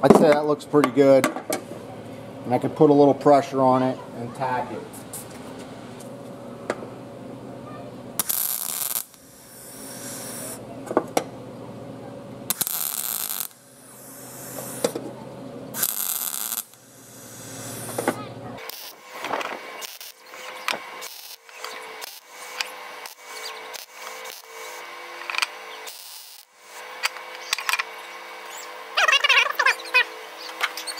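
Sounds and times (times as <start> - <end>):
welder hum: 0.0 - 30.9
welding arc crackling: 8.2 - 10.6, 12.5 - 15.0, 15.7 - 30.9.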